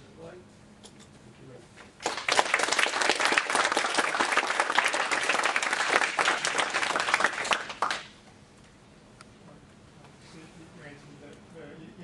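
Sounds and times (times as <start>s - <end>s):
audience applauding: 2.0s - 8.2s.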